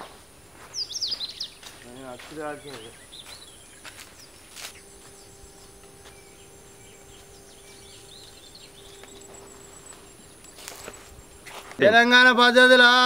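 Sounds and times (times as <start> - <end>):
birds chirping: 0.0 - 13.0
faint high whine: 0.0 - 13.0
low hum: 2.9 - 12.5.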